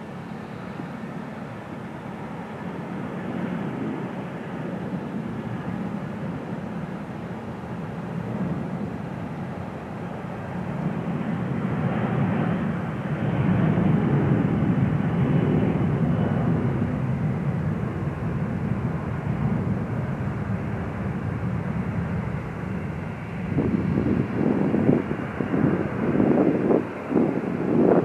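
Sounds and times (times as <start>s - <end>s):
jet engines rumbling at takeoff: 0.0s - 28.0s.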